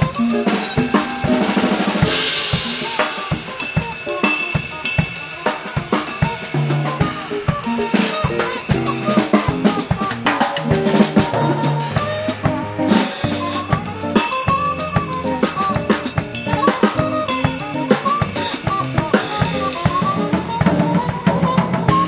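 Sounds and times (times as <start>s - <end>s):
band pitched notes: 0.0s - 22.0s
drum kit playing latin jazz: 0.0s - 22.0s
cymbal crash: 0.6s - 9.0s.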